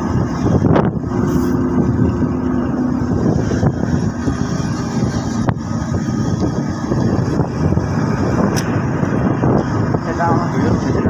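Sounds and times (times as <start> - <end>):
motorcycle engine running: 0.0 - 11.0
wind buffeting microphone: 0.0 - 11.0.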